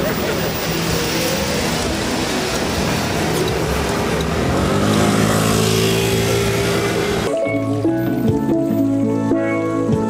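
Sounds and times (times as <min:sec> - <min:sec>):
vehicle passing: 0:00.0 - 0:07.3
street traffic: 0:00.0 - 0:10.0.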